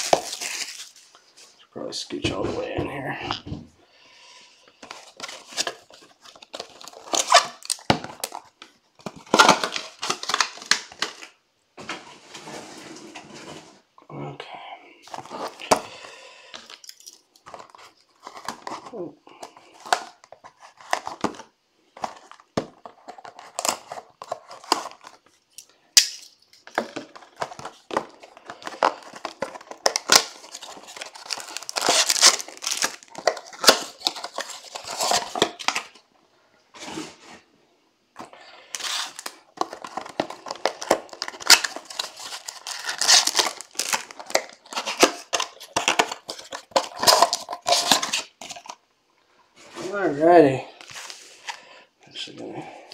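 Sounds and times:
foil packs crinkling and tearing: 0.0 - 1.2, 4.8 - 11.4, 15.1 - 36.0, 38.2 - 48.8.

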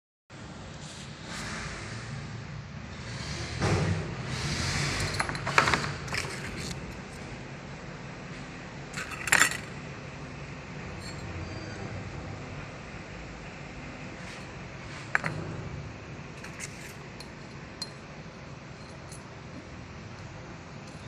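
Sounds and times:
metal engine parts clinking: 5.0 - 7.2, 8.9 - 9.8, 10.9 - 11.4, 14.4 - 15.5, 16.4 - 21.0
low steady hum: 6.0 - 21.0.

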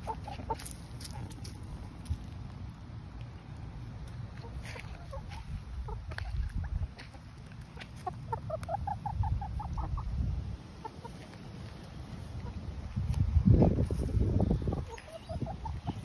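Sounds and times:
chickens clucking: 0.0 - 2.4, 3.2 - 16.0
low microphone rumble: 12.4 - 16.0.

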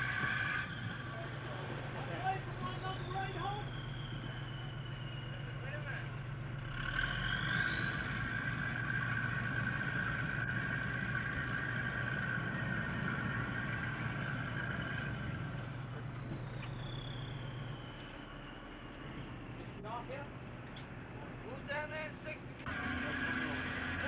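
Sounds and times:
machine high whine: 0.0 - 20.1
engine hum: 0.0 - 24.0.

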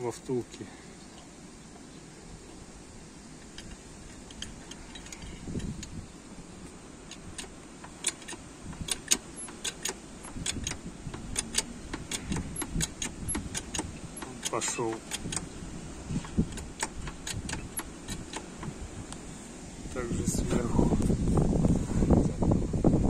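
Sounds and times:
sharp metallic clicks and clanks: 7.1 - 15.5, 16.2 - 18.8.

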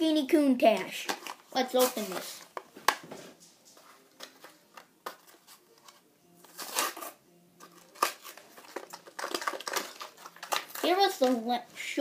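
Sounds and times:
plastic blister pack tearing open: 6.5 - 11.4.

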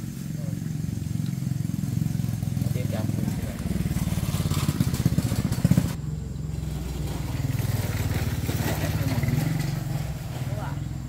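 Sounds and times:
small engine running: 0.0 - 11.0.

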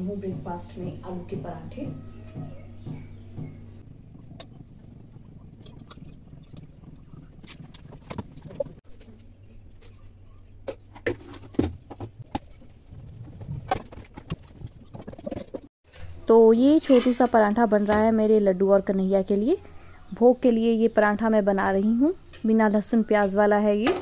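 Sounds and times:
low steady hum: 0.0 - 13.9.

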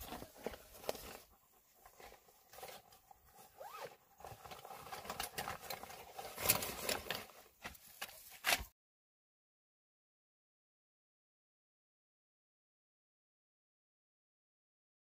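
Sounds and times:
nylon bag rustling: 0.0 - 8.6
zipper: 2.4 - 7.0.

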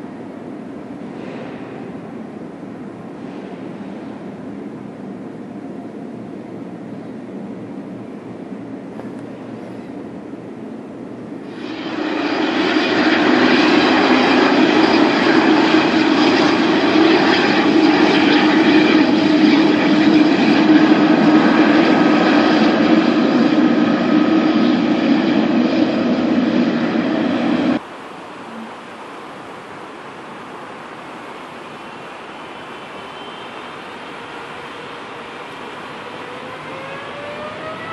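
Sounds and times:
jet engine roar: 0.0 - 37.9.

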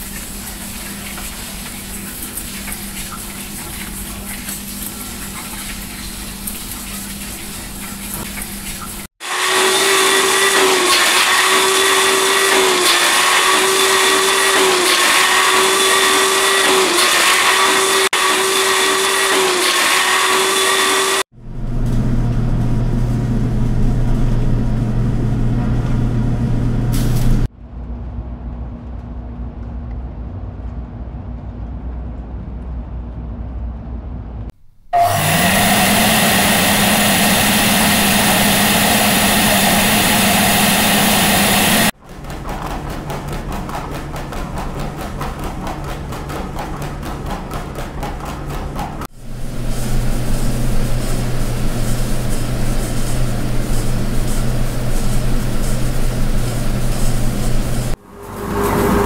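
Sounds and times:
dough mixer motor humming: 9.2 - 21.2, 35.0 - 58.0
rising motor whine: 35.0 - 41.9, 57.9 - 59.0.

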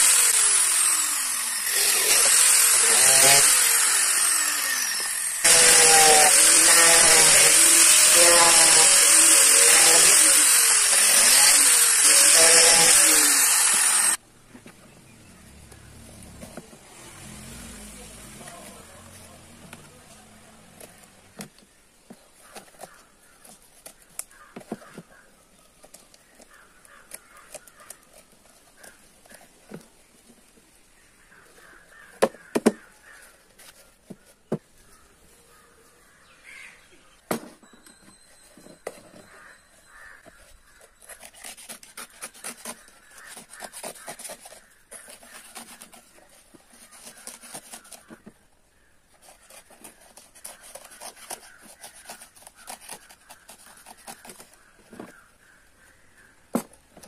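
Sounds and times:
blade rasping coconut fibre: 0.0 - 14.2, 15.8 - 21.6, 38.1 - 55.6.

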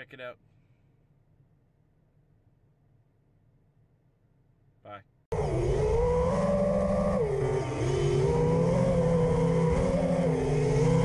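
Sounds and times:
quadcopter motors whining: 5.3 - 11.0.

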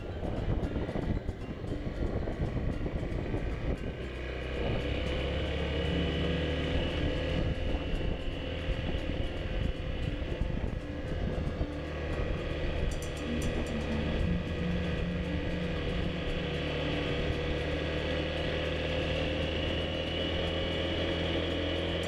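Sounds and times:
motorcycle engine running: 0.0 - 22.0
wind and road noise: 0.0 - 22.0.

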